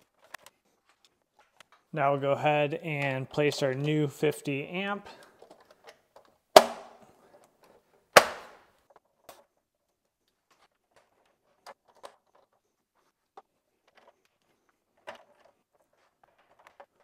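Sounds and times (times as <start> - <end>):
breaker snapping into place: 6.6 - 7.0, 8.2 - 8.6.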